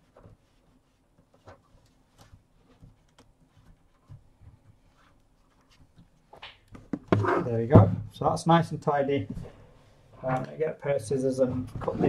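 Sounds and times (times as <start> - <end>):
cable ties clicking and rustling: 1.4 - 3.9.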